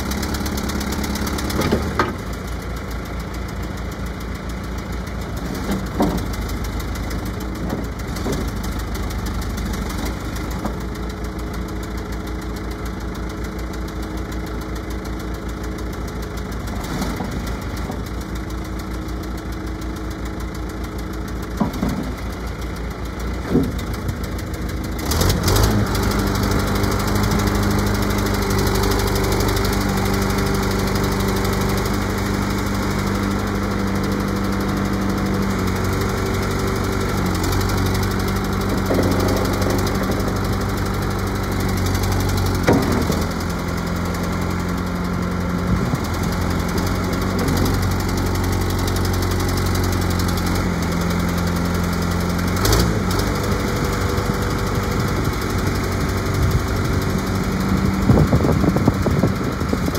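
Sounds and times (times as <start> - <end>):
diesel engine idling: 0.0 - 59.9
hydraulics working: 16.3 - 50.3
sharp knocks from machine: 42.6 - 43.4.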